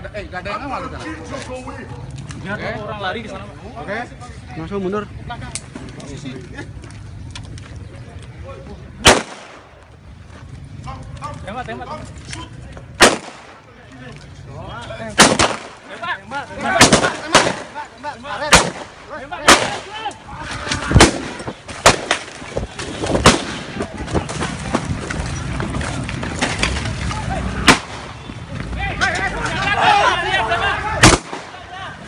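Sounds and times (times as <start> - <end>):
pistol shots: 9.0 - 9.7, 13.0 - 13.6, 15.2 - 15.9, 16.8 - 17.8, 18.5 - 19.9, 21.0 - 22.3, 27.6 - 28.2, 31.0 - 31.6
men shouting: 28.7 - 32.0.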